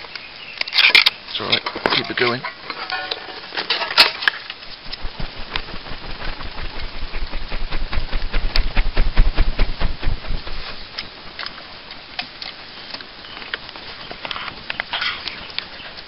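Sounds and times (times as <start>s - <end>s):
faint embers crackling: 0.0s - 16.0s
air gusts buffeting microphone: 4.6s - 12.0s
panel fanning with whooshing strokes: 4.6s - 12.9s.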